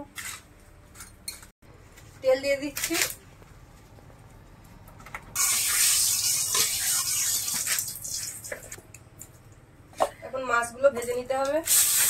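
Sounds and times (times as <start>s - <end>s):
hot oil sizzling: 5.4s - 8.6s, 11.7s - 12.0s.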